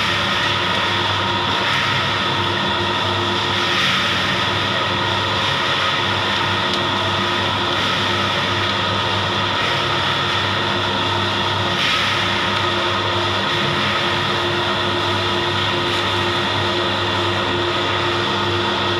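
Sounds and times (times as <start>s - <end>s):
dryer machine humming and whirring: 0.0s - 18.9s.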